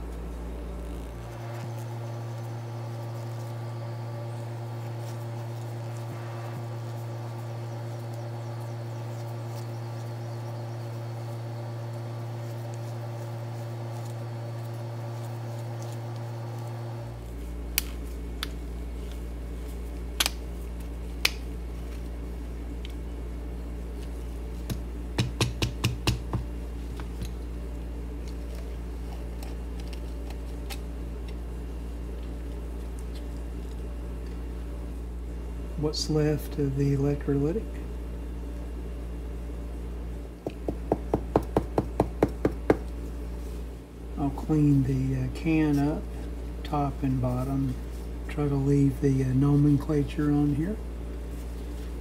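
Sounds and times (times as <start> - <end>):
steady low hum: 0.0 - 52.0.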